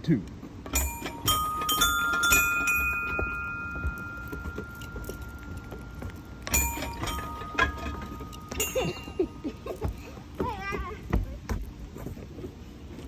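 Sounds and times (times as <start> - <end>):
bell-like metal plate notes: 0.7 - 9.8.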